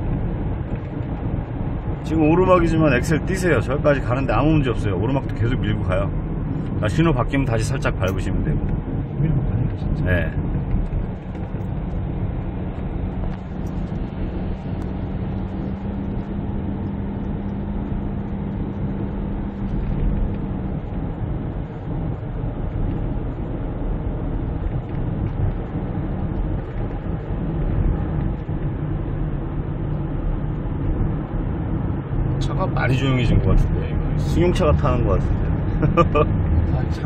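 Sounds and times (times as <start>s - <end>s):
road and engine drone in cabin: 0.0s - 37.0s.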